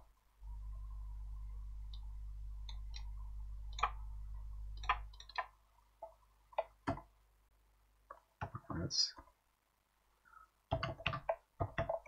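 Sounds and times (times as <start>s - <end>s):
low steady hum: 0.0s - 12.0s
mouse and keyboard clicks: 10.7s - 12.0s.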